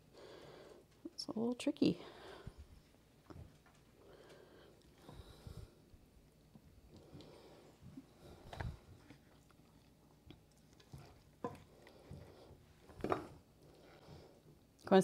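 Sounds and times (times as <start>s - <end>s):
spoon stirring wet mixture: 6.0s - 14.7s.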